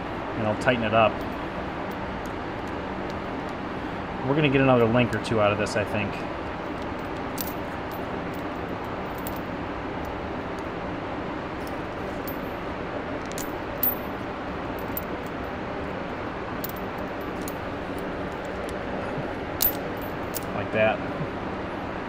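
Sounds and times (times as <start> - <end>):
metal chain links clinking: 6.8 - 9.5, 11.6 - 12.6, 13.2 - 14.2, 14.8 - 15.4, 16.6 - 18.7, 19.6 - 20.6.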